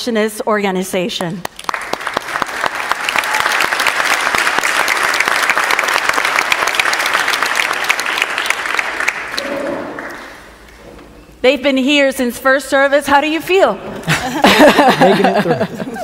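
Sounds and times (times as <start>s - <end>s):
crowd applauding: 1.5s - 10.4s.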